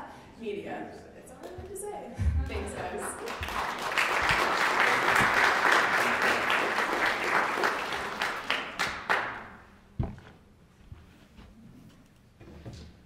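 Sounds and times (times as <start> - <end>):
audience applauding: 2.6 - 9.6.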